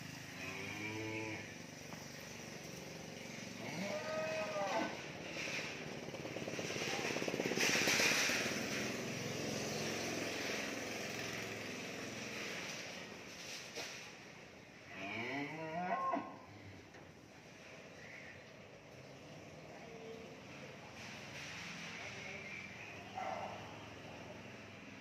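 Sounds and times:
cattle mooing: 0.4 - 1.5, 3.6 - 5.1, 14.9 - 16.6
rapid rattling noise: 5.1 - 11.6.

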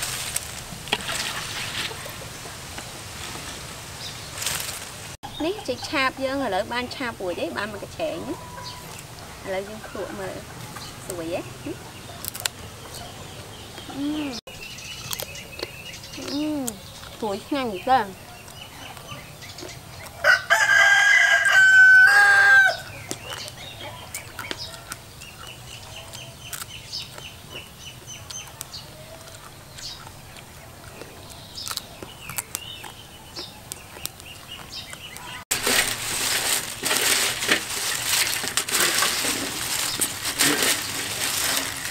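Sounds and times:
loud crackling noise: 0.0 - 5.2, 33.7 - 41.9
rooster crowing: 20.2 - 22.9.

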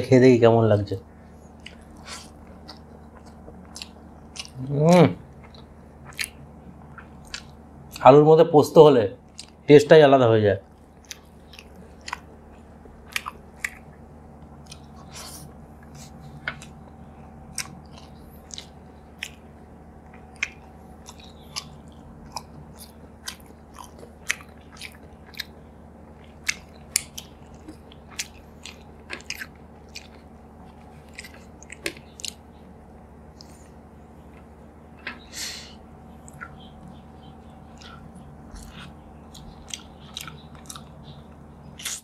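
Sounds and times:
steady low hum: 0.0 - 42.0
person chewing food: 1.4 - 8.0, 9.2 - 9.6, 10.6 - 42.0
mouth clicks and smacks: 13.1 - 13.9, 20.1 - 25.5, 36.2 - 42.0.

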